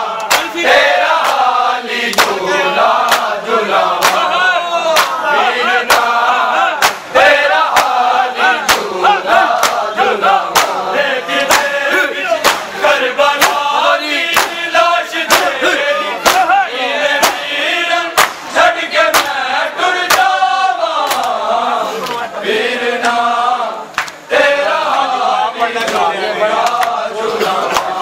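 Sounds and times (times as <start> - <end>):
men chanting in unison: 0.0 - 28.0
hands slapping chests: 0.2 - 0.6, 1.2 - 1.5, 2.1 - 2.4, 3.0 - 3.3, 4.0 - 4.3, 4.9 - 5.2, 5.9 - 6.1, 6.8 - 7.1, 7.7 - 8.0, 8.6 - 8.9, 9.6 - 9.9, 10.5 - 10.8, 11.4 - 11.7, 12.4 - 12.7, 14.3 - 14.6, 15.3 - 15.6, 16.2 - 16.5, 17.2 - 17.4, 18.2 - 18.4, 19.1 - 19.4, 21.0 - 21.4.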